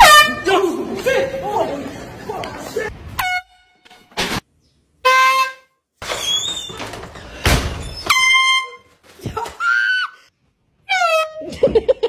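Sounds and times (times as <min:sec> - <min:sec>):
air horn blasts: 0:00.0 - 0:00.5, 0:03.2 - 0:04.1, 0:05.0 - 0:05.8
loud thump: 0:07.4 - 0:08.0.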